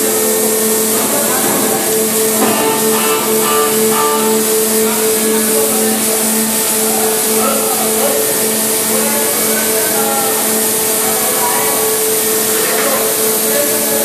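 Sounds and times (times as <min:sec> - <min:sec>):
loud steady machine hum: 0:00.0 - 0:14.0.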